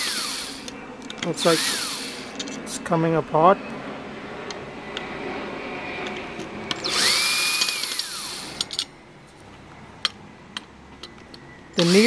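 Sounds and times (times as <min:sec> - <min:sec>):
cordless drill motor whining: 0:00.0 - 0:02.5, 0:06.7 - 0:08.8, 0:11.8 - 0:12.0.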